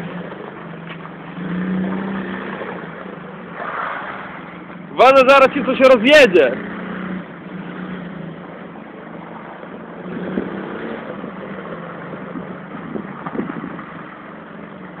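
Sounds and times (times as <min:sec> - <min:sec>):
steady engine hum: 0:00.0 - 0:15.0
quad bike engine revving: 0:01.2 - 0:08.3, 0:10.0 - 0:13.9.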